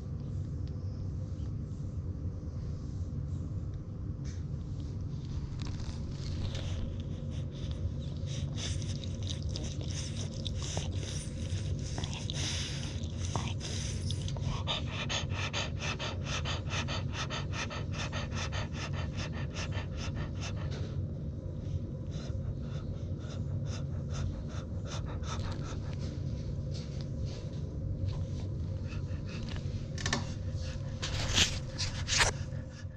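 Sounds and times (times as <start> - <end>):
dog snorting and sniffing: 5.3 - 21.0, 22.0 - 27.0, 28.0 - 32.9
dog panting: 5.6 - 32.9.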